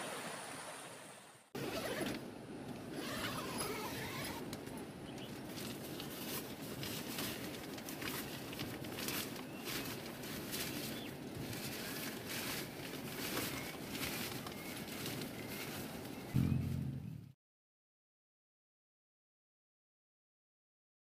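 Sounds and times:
nylon tent fabric rustling: 0:01.6 - 0:02.2, 0:03.0 - 0:04.4, 0:05.4 - 0:16.2.

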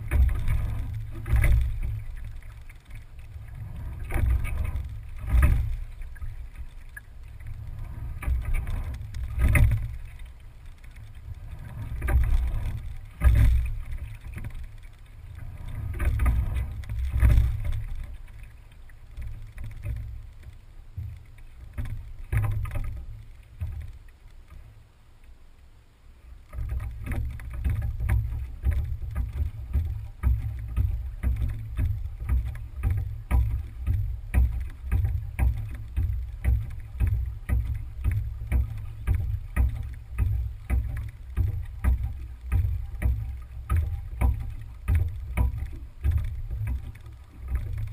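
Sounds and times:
rowing stroke knocks: 0:00.0 - 0:24.0, 0:26.5 - 0:47.9
low rumble: 0:00.0 - 0:25.1
water sloshing: 0:00.0 - 0:25.3, 0:26.3 - 0:47.9
choppy water splashing: 0:00.0 - 0:47.9.

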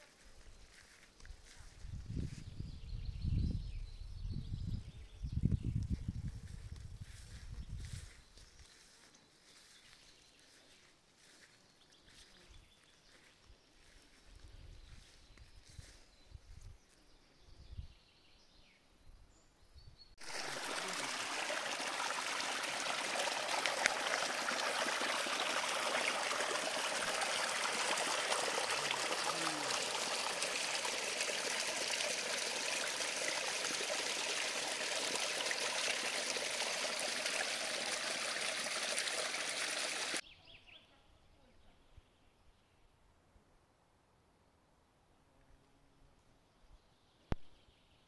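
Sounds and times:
brook flowing over rocks: 0:20.2 - 0:40.2.

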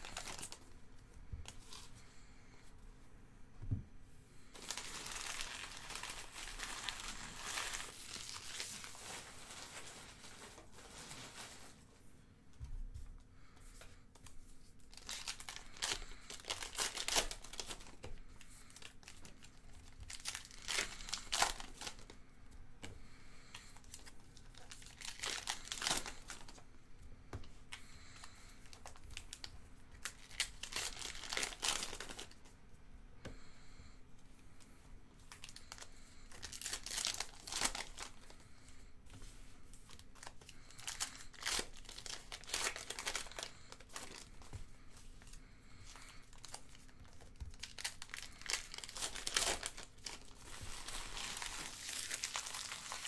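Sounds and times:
foil wrappers tearing and crinkling: 0:00.0 - 0:00.6, 0:04.6 - 0:11.8, 0:14.9 - 0:17.9, 0:18.6 - 0:22.1, 0:23.9 - 0:26.6, 0:28.7 - 0:32.4, 0:35.4 - 0:38.3, 0:39.9 - 0:44.3, 0:46.0 - 0:53.0.

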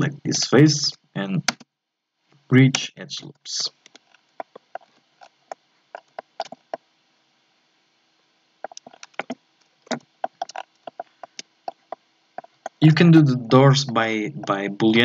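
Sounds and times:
faint steady hum: 0:00.0 - 0:15.0
computer mouse clicks: 0:06.0 - 0:06.8.

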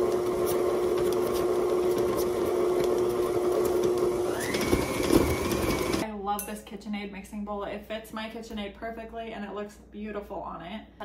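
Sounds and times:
beater churning thick dough: 0:00.0 - 0:06.0
stand mixer motor humming: 0:00.0 - 0:06.0.

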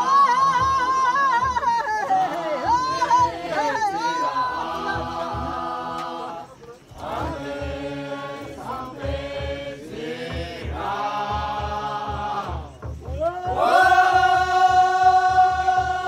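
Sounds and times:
men chanting together: 0:00.0 - 0:16.0
steady low beat: 0:06.9 - 0:16.0.

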